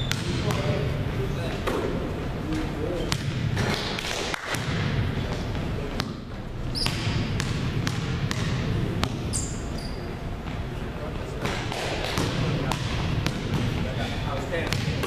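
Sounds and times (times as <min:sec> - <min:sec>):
basketballs bouncing on wooden floor: 0:00.0 - 0:00.8, 0:02.5 - 0:09.6, 0:11.4 - 0:15.0
short high squeaks: 0:09.3 - 0:10.2.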